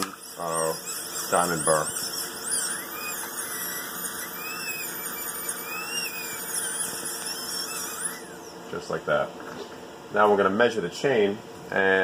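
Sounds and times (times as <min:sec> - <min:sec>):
dental drill whining: 0:00.0 - 0:08.8.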